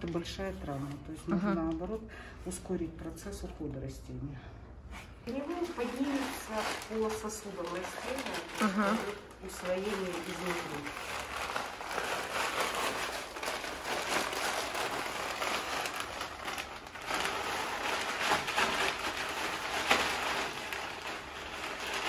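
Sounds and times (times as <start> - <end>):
plastic bag crinkling: 5.2 - 22.0.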